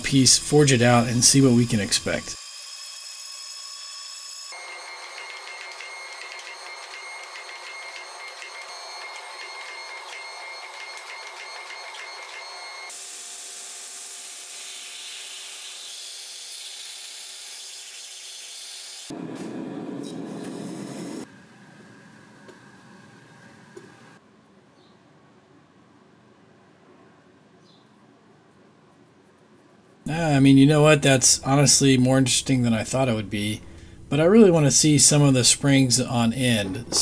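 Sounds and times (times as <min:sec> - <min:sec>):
band saw cutting steel: 0:00.0 - 0:19.2
hydraulic press running: 0:04.5 - 0:13.0, 0:31.2 - 0:37.0.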